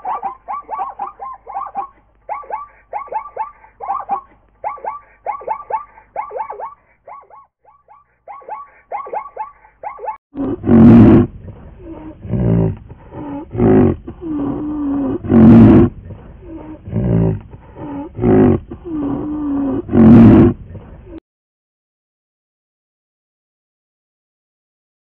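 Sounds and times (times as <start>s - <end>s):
wild animal roaring: 10.4s - 20.6s
animal grunts: 10.4s - 21.2s.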